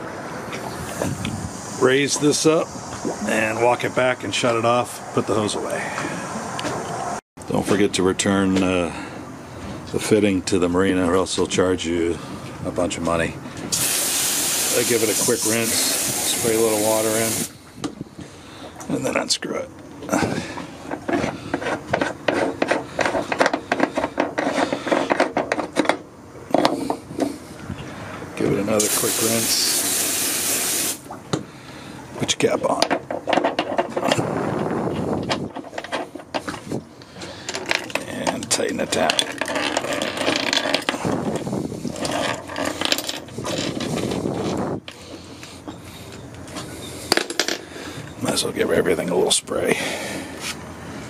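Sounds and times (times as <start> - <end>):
metal cap threads grinding: 37.5 - 44.2.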